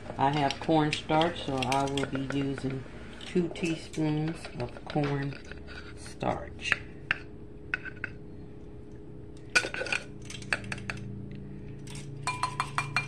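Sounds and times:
low steady hum: 0.0s - 13.0s
spoon clinking against bowl: 12.2s - 13.0s.

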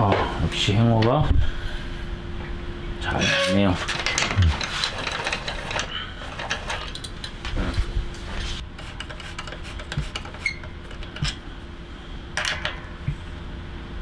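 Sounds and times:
faint steady hum: 0.0s - 14.0s
metal tool clicks and knocks: 12.4s - 12.8s.

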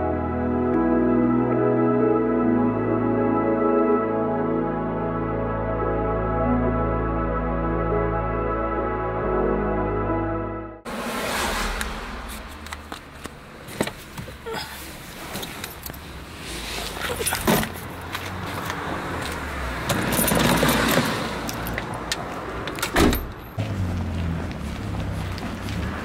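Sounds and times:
rustling and scraping: 11.7s - 18.8s.

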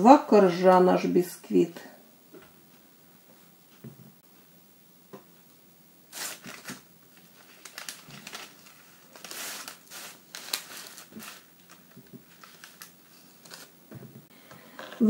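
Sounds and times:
parchment paper rustling and crinkling: 6.1s - 15.0s.

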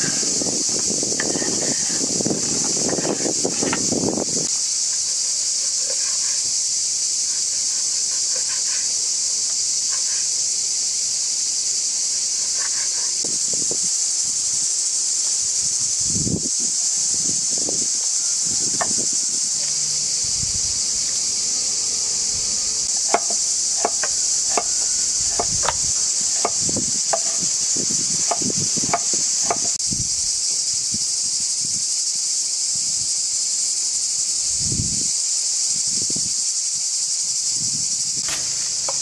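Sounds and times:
insect chorus: 0.0s - 39.0s
knife chopping on wooden board: 23.1s - 27.5s, 28.2s - 29.8s, 38.2s - 39.0s.

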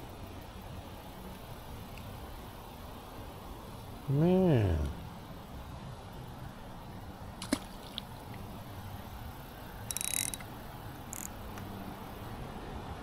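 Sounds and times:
fishing reel ratcheting clicks: 9.8s - 10.5s, 11.1s - 11.4s.

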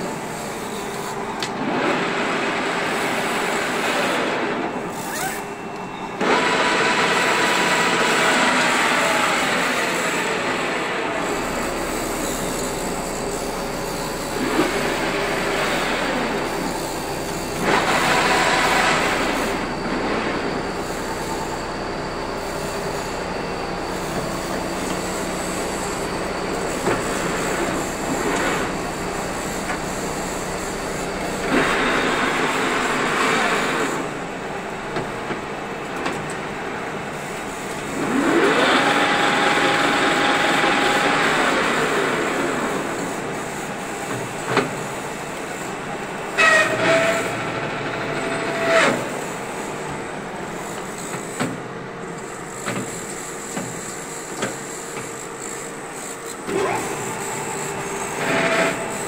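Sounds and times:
lathe whirring: 0.0s - 59.0s
rising machine whine: 2.3s - 34.5s.

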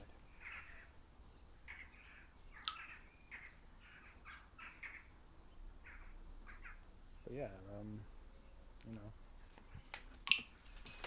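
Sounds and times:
faint scratchy bird calls: 0.0s - 11.0s
sharp bird chirp: 1.7s - 5.2s.

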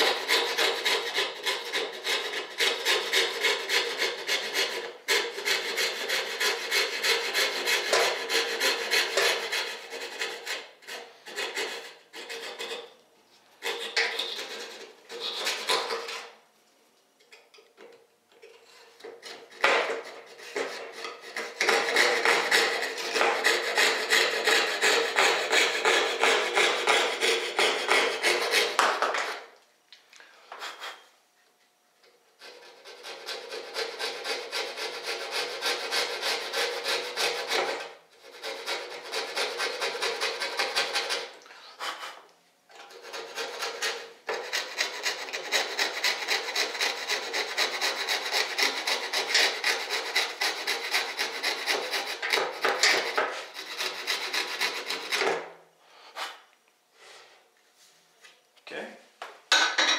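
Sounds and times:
coping saw cutting: 0.0s - 12.9s, 19.2s - 28.9s, 32.4s - 42.2s, 42.9s - 55.4s.

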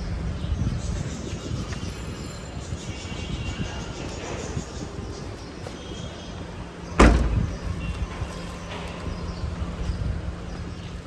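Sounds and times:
street noise hum: 0.0s - 11.0s
car trunk lid slamming: 7.0s - 7.7s.

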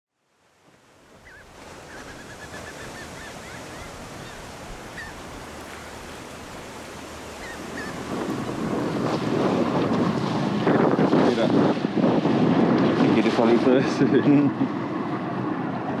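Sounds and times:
ocean surf: 0.2s - 16.0s
bird calling: 1.2s - 8.2s.

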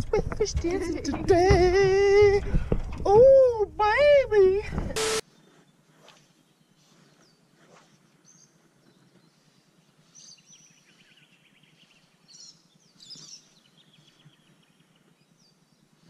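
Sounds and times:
steady low hiss: 0.0s - 16.0s
birds chirping and trilling: 5.3s - 16.0s.

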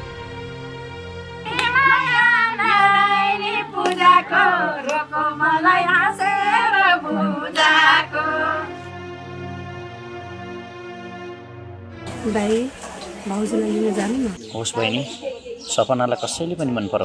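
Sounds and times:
background music: 0.0s - 15.1s
high voice singing with vibrato: 1.5s - 8.8s.

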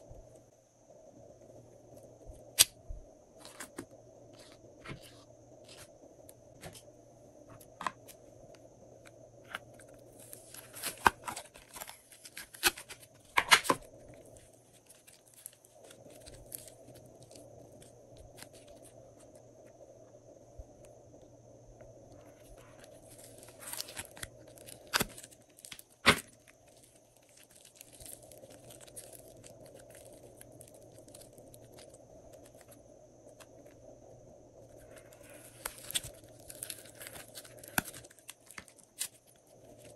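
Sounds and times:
faint steady hum: 0.0s - 39.9s
plastic crinkling: 9.5s - 19.0s, 22.5s - 33.5s, 34.7s - 39.9s.

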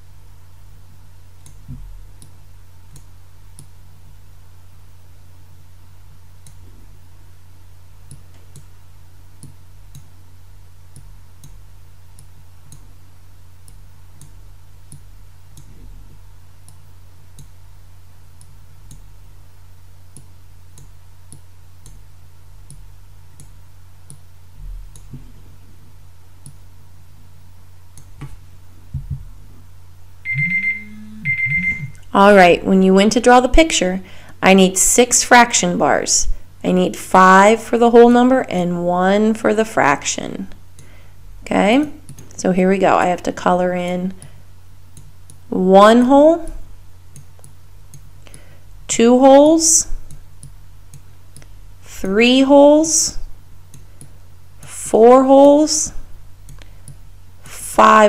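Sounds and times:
low electrical hum: 0.0s - 58.0s
electronic timer beeping: 30.2s - 32.0s.

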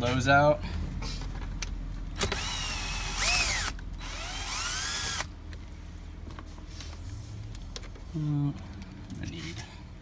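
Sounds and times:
cordless driver motor whine: 2.2s - 5.3s.

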